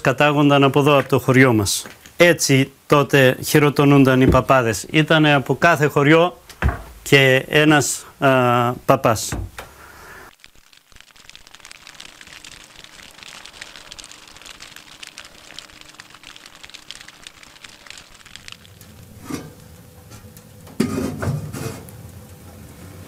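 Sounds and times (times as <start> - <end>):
knocks and thuds: 4.2 - 4.6, 6.6 - 7.0
fire crackling: 9.6 - 23.0.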